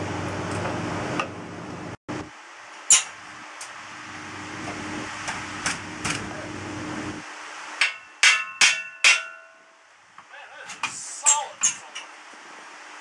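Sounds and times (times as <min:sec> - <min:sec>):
mechanical hum: 0:00.0 - 0:08.2
metallic clanks: 0:07.8 - 0:09.8.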